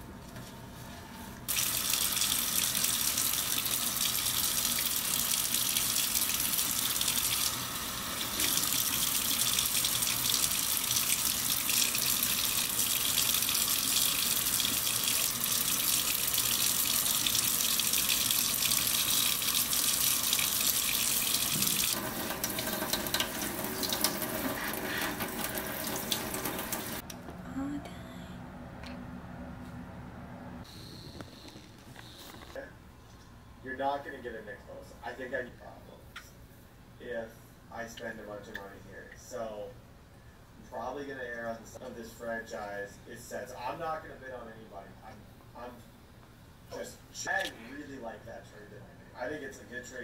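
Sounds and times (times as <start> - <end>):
tap water running into sink: 1.5 - 27.0.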